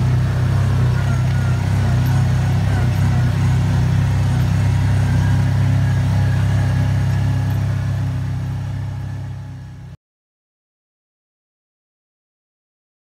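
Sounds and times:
utility vehicle engine running: 0.0 - 10.0.

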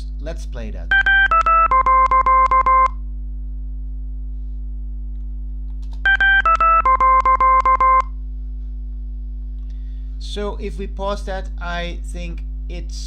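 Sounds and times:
low steady hum: 0.0 - 13.0
descending electronic beeps: 1.4 - 2.9, 6.1 - 8.0.

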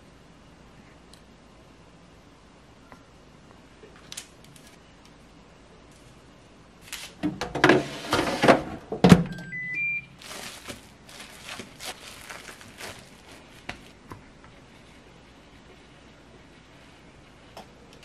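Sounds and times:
keypad beeps rising in pitch: 9.3 - 10.1
plastic wrap rustling: 10.1 - 14.1.

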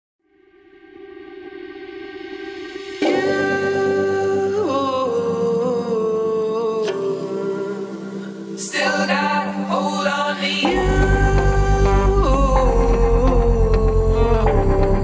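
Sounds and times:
song with gliding vocal: 0.4 - 15.0
sustained chords: 10.6 - 15.0.

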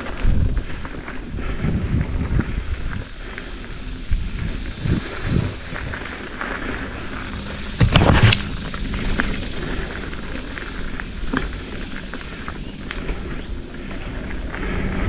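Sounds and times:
mountain bike tyre and trail noise: 0.0 - 15.0
bike jolt: 4.2 - 15.0
bike clicks and knocks: 5.0 - 14.8.

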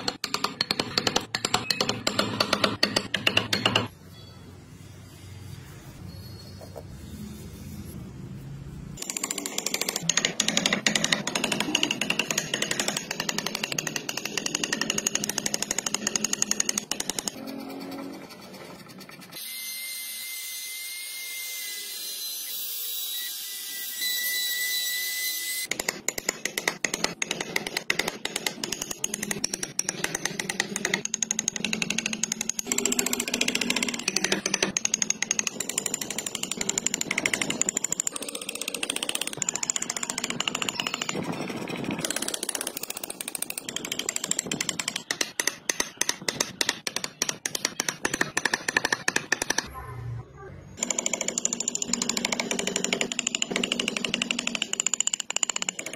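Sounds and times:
carving tool scraping wood: 25.8 - 49.7.

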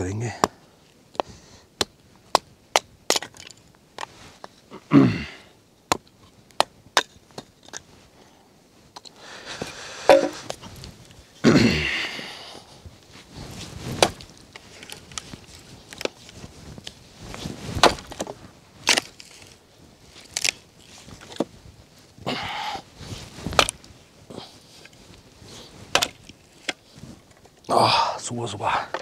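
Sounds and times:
axe splitting firewood: 1.2 - 4.1, 9.6 - 10.6, 14.0 - 15.2, 17.8 - 19.6, 23.5 - 23.9, 25.9 - 26.8.

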